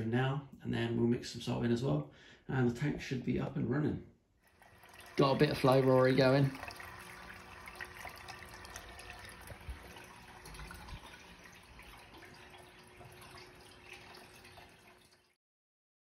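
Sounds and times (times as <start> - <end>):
water churning and splashing: 4.5 - 15.4.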